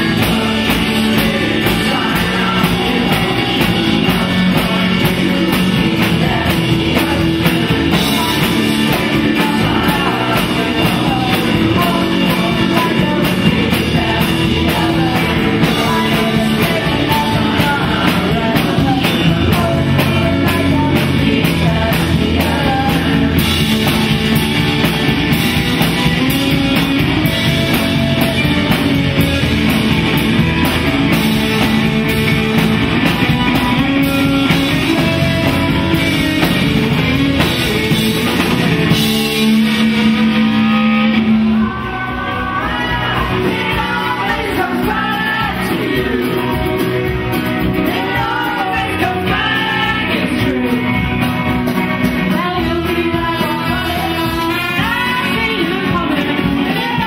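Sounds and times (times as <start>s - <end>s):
woman singing: 0.0s - 24.4s, 41.4s - 46.9s, 47.7s - 51.1s, 52.1s - 57.0s
bass guitar: 0.0s - 57.0s
drum kit: 0.0s - 57.0s
electric guitar: 0.0s - 57.0s.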